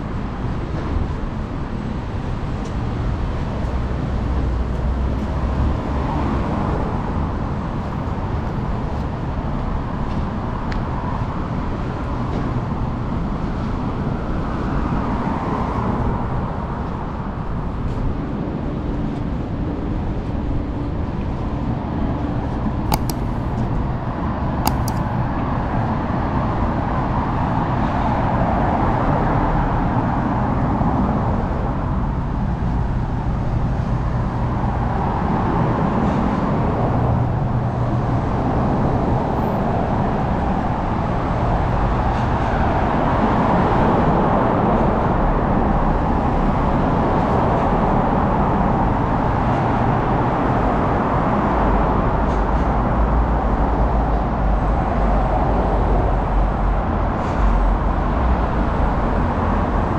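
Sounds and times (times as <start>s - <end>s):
urban hum: 0.0s - 59.9s
sharp clicks: 22.9s - 23.6s, 24.7s - 25.2s
cars passing: 33.0s - 59.9s.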